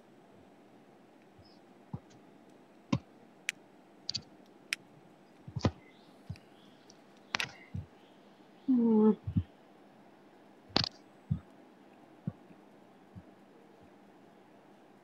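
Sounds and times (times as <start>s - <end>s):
faint steady hiss: 0.0s - 15.0s
mouse and keyboard clicks: 4.1s - 4.3s, 5.4s - 6.4s, 7.2s - 7.7s, 10.7s - 11.4s.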